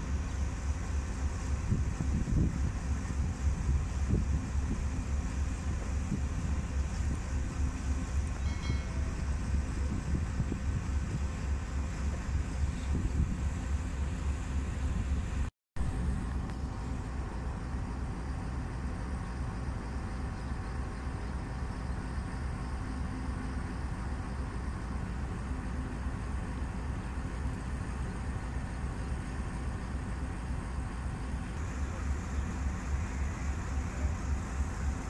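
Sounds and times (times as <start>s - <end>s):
wind buffeting microphone: 1.5s - 15.4s.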